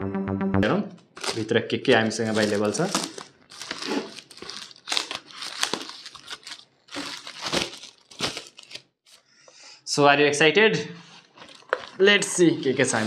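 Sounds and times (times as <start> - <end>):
plastic bag crinkling and tearing: 1.2 - 9.0, 11.4 - 13.0.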